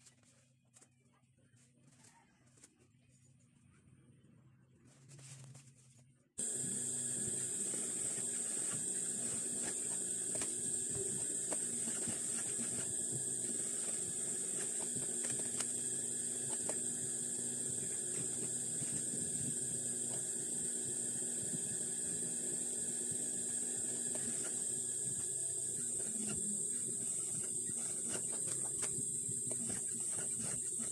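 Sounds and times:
sewing machine motor humming: 6.4 - 30.9.

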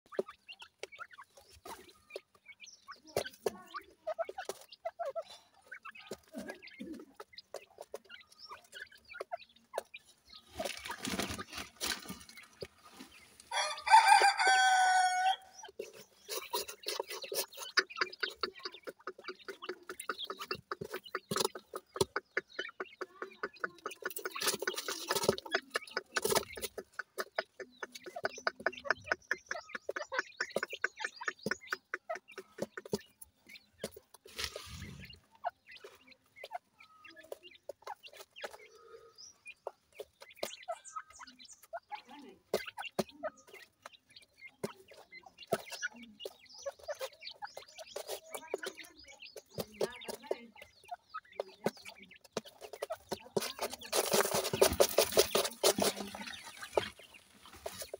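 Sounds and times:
birds clucking softly: 0.0 - 57.9.

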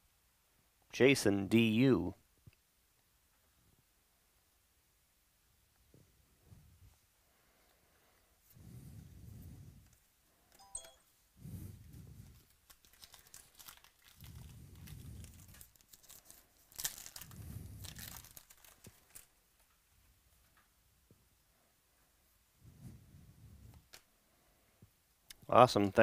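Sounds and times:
foil wrapper crinkling: 12.3 - 19.7.

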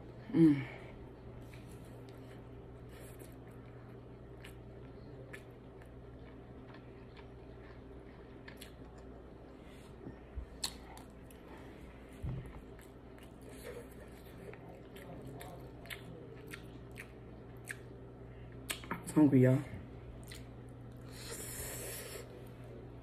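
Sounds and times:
steady low hum: 0.0 - 23.0
faint chewing: 1.4 - 19.0, 20.2 - 22.6.

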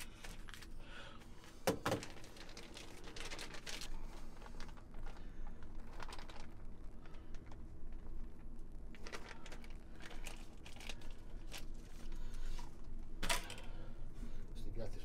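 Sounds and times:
plastic bag crinkling: 1.7 - 12.6.

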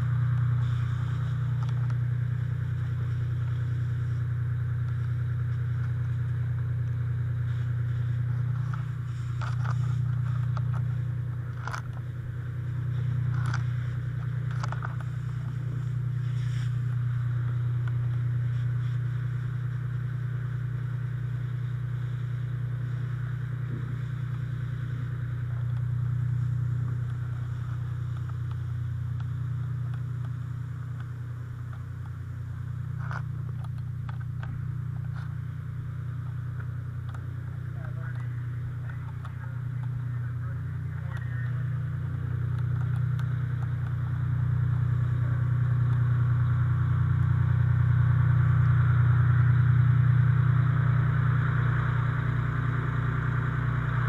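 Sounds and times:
fire engine motor hum: 0.0 - 54.0
gear clicking and scraping: 6.8 - 12.2, 12.9 - 19.0.

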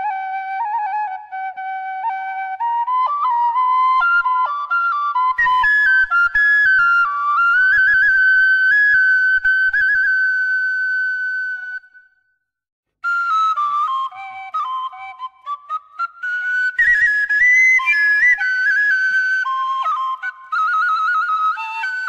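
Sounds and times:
bamboo flute melody: 0.0 - 12.2, 13.0 - 22.0.

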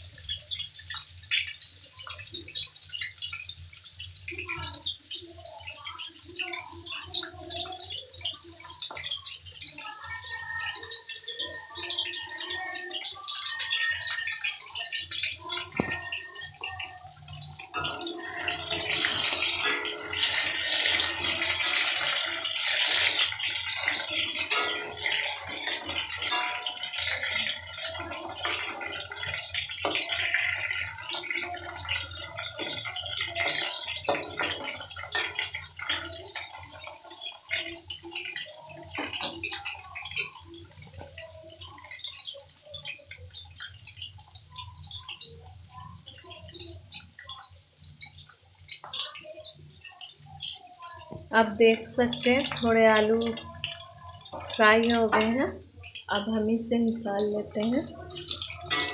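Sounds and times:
food sizzling in hot oil: 0.0 - 58.9
metal ladle clicking on pan: 16.8 - 36.9, 57.6 - 58.9.

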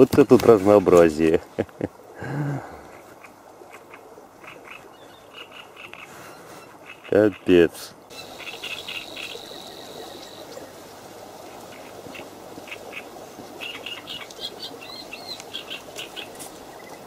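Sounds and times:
small birds chirping: 2.9 - 10.9, 11.5 - 17.0.

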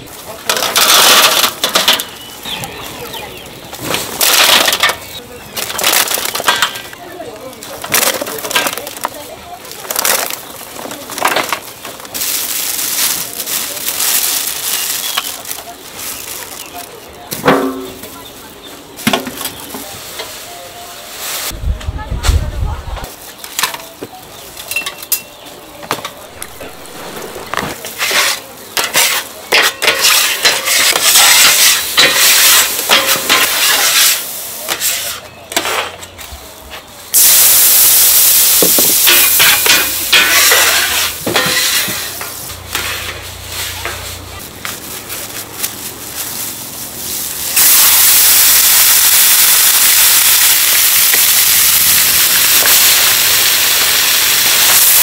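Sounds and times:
metal scrapers on iron griddle: 0.5 - 2.2, 26.4 - 36.0, 39.0 - 44.4
meat sizzling on griddle: 26.3 - 27.8, 30.0 - 35.1, 37.2 - 43.0, 46.4 - 55.0
steam hissing on hot plate: 31.1 - 35.2, 37.1 - 42.4, 47.0 - 55.0.

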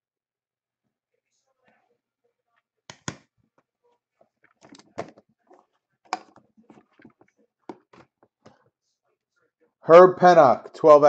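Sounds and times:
case clicks and knocks: 4.5 - 5.3, 6.1 - 8.3.

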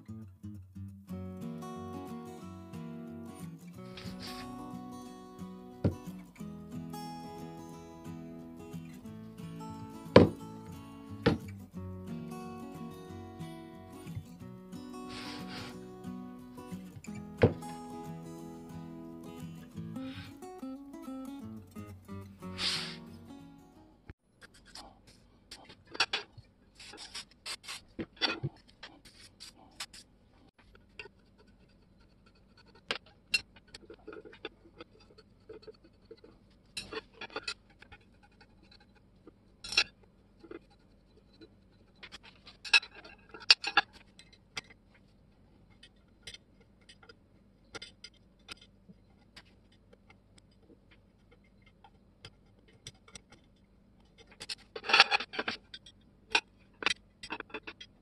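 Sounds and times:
metal parts clicking and scraping: 31.0 - 44.8, 52.5 - 58.0.

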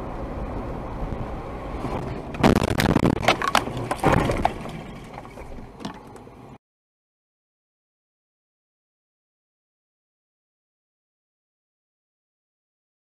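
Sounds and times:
car road noise: 0.0 - 6.6
car knocking and crashing: 1.8 - 6.3.

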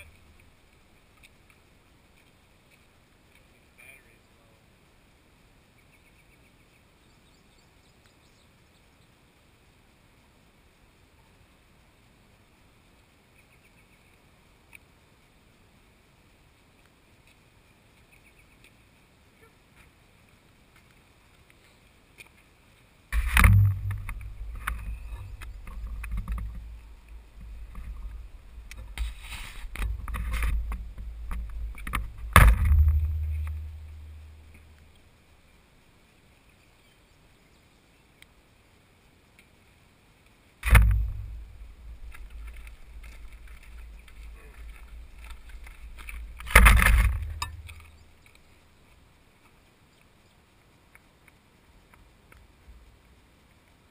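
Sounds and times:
muffled rumbling against camera case: 23.2 - 34.7, 40.6 - 48.5.

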